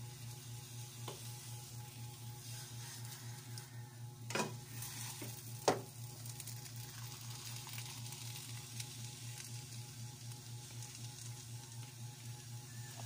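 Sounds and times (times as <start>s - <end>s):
spatula stirring dough: 0.0s - 3.9s
cooking mixture hissing: 0.0s - 13.0s.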